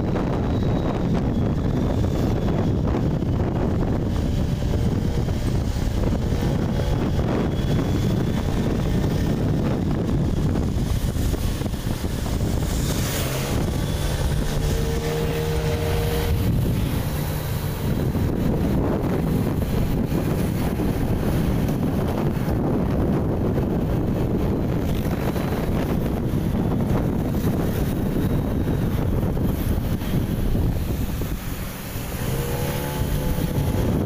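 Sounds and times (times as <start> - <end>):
motorcycle engine hum: 0.0 - 34.0
wind buffeting microphone: 0.0 - 34.0.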